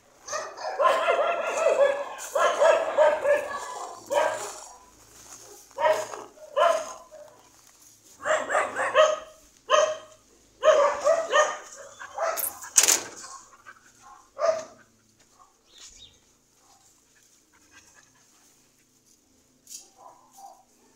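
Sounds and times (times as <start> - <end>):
dog barking: 0.2 - 7.5, 8.2 - 15.6, 19.8 - 20.9.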